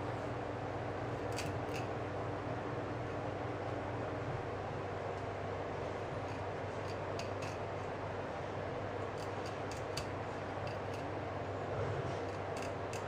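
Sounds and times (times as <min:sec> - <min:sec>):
steady background hum: 0:00.0 - 0:13.0
knife clicks and scrapes on fish: 0:09.2 - 0:11.1, 0:12.2 - 0:13.0.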